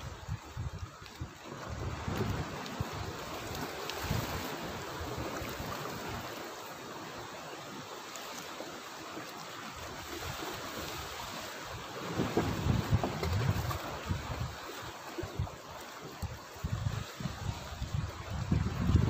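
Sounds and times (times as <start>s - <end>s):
wind buffeting microphone: 0.0s - 6.4s, 10.2s - 19.0s
sea washing against rocks: 0.0s - 19.0s.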